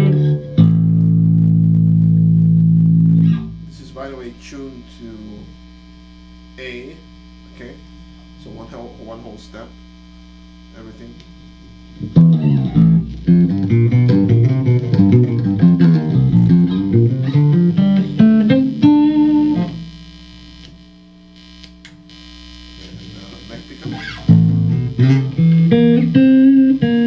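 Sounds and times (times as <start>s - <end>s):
soft guitar string sounds: 0.0s - 3.8s, 12.0s - 19.8s
loud low electric guitar riffing: 0.0s - 4.0s, 12.0s - 19.9s, 22.9s - 27.0s
amp hum: 0.0s - 27.0s.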